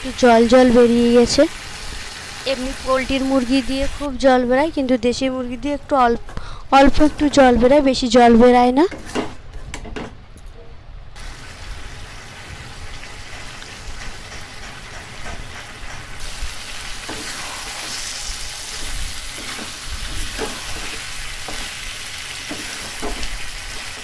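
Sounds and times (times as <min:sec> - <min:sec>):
chicken sizzling in a pan: 0:00.0 - 0:04.0, 0:11.2 - 0:14.0, 0:16.2 - 0:24.0
metal spatula scraping a pan: 0:17.0 - 0:24.0.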